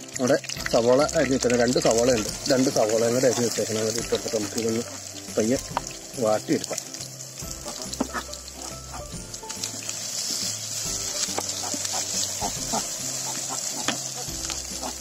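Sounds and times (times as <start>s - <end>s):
onions sizzling in oil: 0.0s - 15.0s
wooden spoon scraping a pan: 11.2s - 15.0s.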